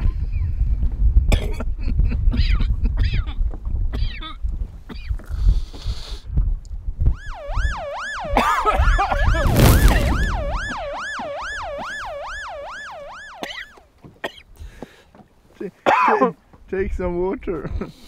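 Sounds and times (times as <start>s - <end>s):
siren wailing: 7.1s - 13.8s.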